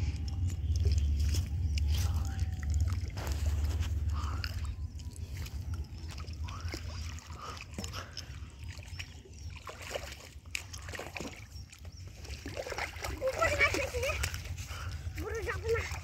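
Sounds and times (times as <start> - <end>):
low steady rumble: 0.0 - 9.7
fish splashing in water: 0.0 - 16.0.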